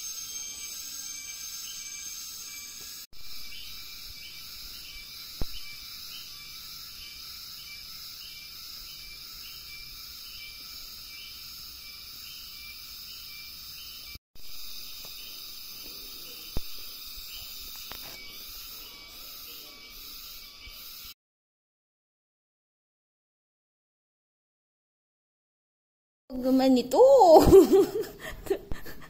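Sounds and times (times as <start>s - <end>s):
insect chorus drone: 0.0s - 21.2s
pulsing insect call: 0.0s - 21.2s.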